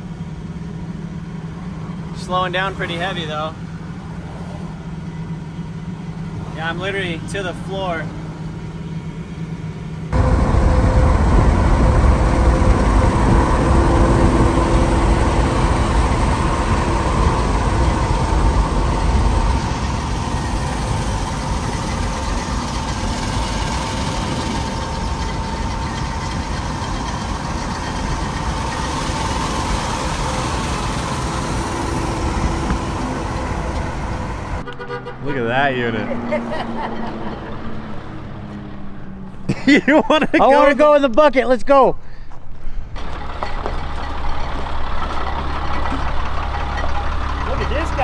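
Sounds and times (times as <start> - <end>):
tyres and engines roaring: 0.0 - 48.0
wind rumble on microphone: 10.1 - 29.3.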